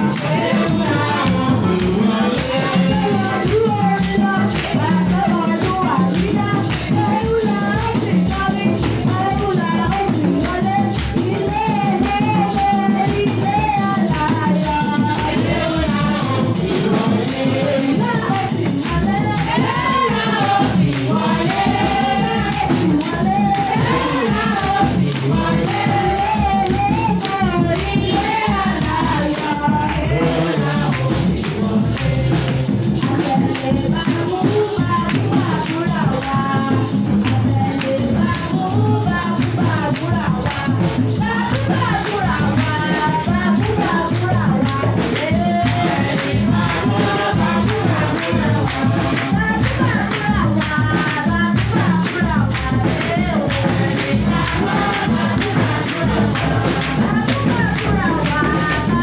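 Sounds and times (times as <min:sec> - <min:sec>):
congregation singing: 0:00.0 - 0:59.0
drums: 0:00.0 - 0:59.0
rattle or tambourine percussion: 0:00.0 - 0:59.0.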